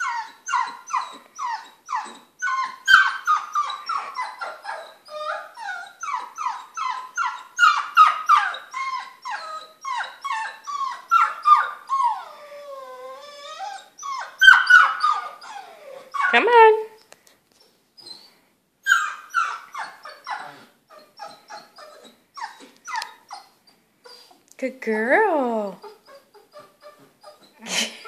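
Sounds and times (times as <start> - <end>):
puppy yelping and whining: 0.0 - 17.0, 17.6 - 24.4, 25.7 - 28.0.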